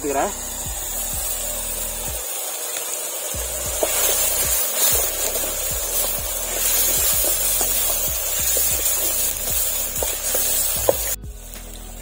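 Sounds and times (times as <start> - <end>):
background music: 0.0 - 2.4, 3.3 - 12.0
onions sizzling in hot oil: 0.0 - 12.0
metal spoon scraping a pan: 3.7 - 11.2.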